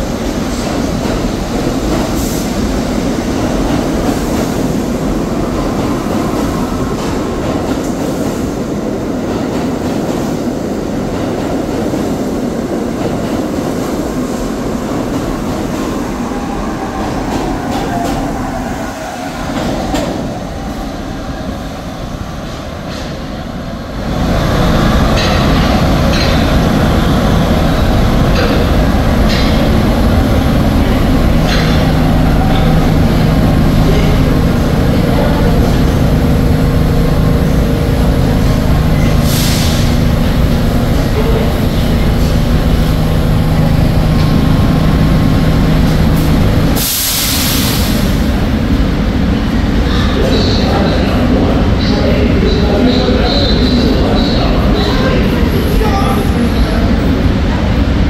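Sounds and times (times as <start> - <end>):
subway train wheels rumbling: 0.0 - 58.0.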